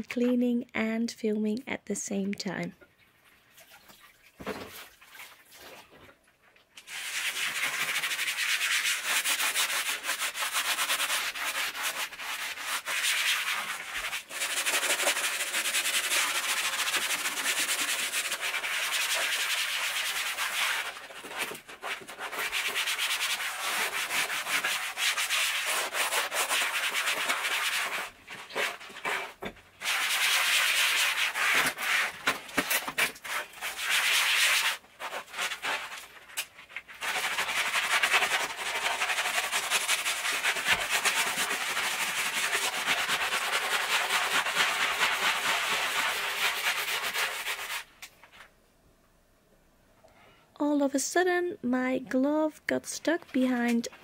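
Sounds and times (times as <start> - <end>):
scrubbing a gritty floor: 6.9 - 47.9.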